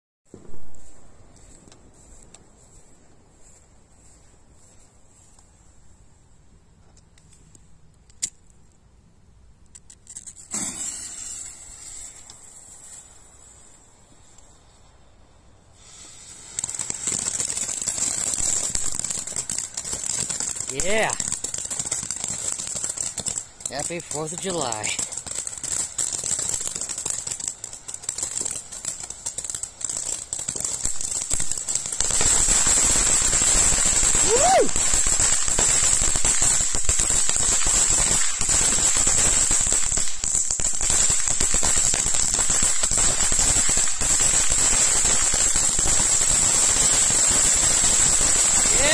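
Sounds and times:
firework fuse hissing sparks: 9.8s - 15.0s, 15.7s - 48.9s.

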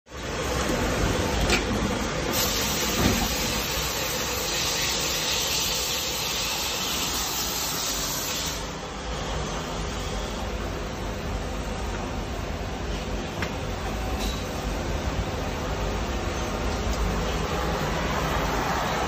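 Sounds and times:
steady machine hiss: 2.3s - 10.5s.

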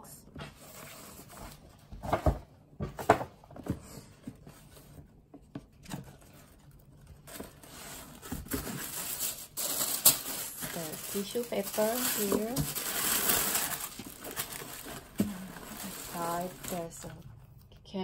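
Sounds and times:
tissue paper rustling: 6.1s - 17.2s.

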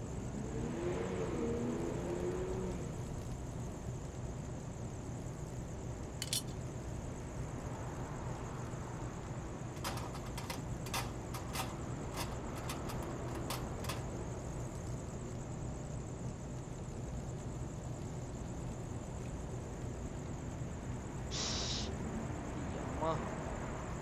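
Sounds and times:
light metallic clicks and clinks: 6.2s - 6.6s, 9.8s - 14.2s
thin high hiss: 21.2s - 22.0s.

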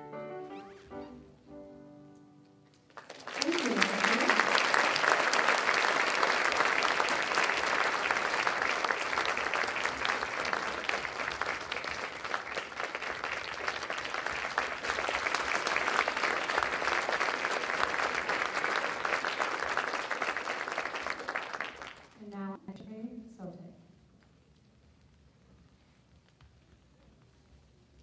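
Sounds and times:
audience applauding: 2.7s - 22.2s.

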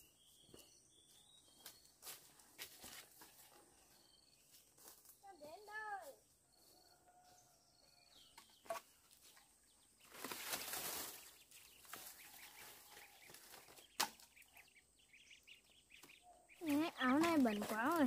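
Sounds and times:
dry palm fronds rustling: 8.7s - 14.6s, 16.0s - 18.0s
ducklings peeping: 10.6s - 18.0s
sharp knock of bamboo: 14.0s - 14.3s.

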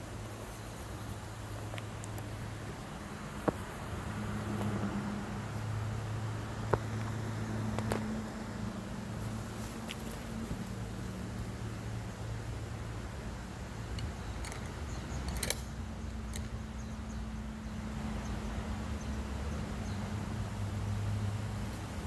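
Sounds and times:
faint clicks and ticks: 13.9s - 17.0s.

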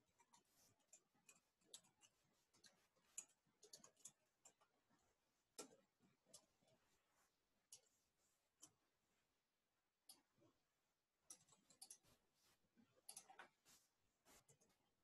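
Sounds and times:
computer keyboard typing: 0.0s - 4.6s.

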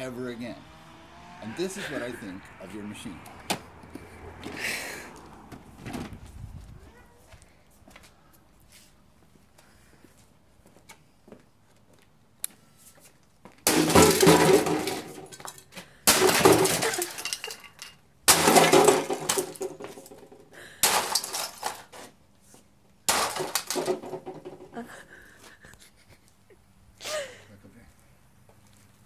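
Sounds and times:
plastic breaking and clattering: 13.6s - 22.0s, 23.1s - 24.8s.

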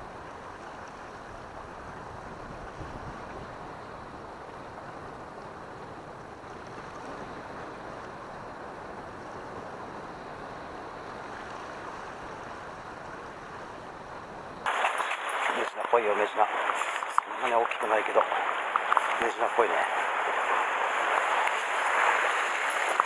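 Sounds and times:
sea surf on rocky shore: 14.6s - 23.0s.

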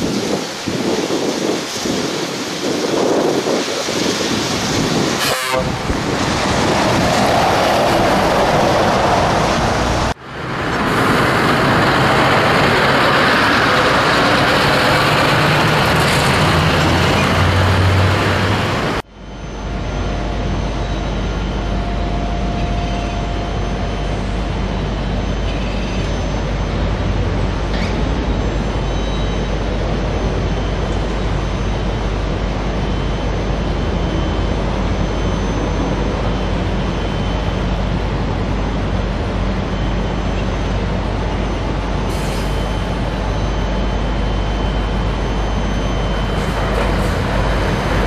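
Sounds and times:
truck engine and road noise: 0.0s - 48.0s
truck horn toot: 5.2s - 5.8s.

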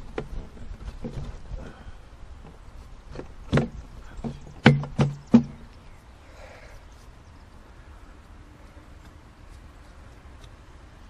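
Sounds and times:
plastic pipe fittings knocking: 3.1s - 5.6s.

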